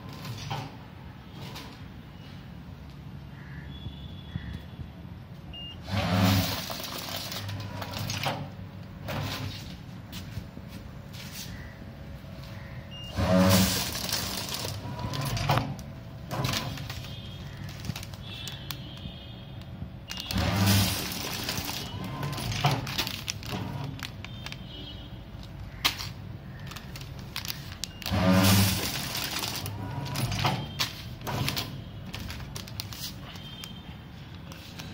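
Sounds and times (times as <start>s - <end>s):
packing machine clatter: 0.0s - 1.8s, 5.8s - 9.9s, 13.0s - 18.8s, 20.1s - 24.7s, 25.4s - 34.9s
machine running noise: 5.8s - 11.4s, 12.1s - 24.8s, 25.6s - 33.8s.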